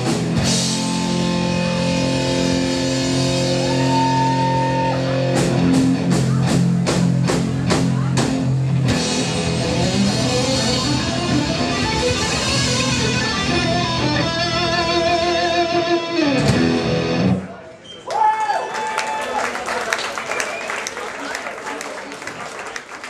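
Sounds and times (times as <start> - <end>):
hard rock band playing: 0.0 - 17.4.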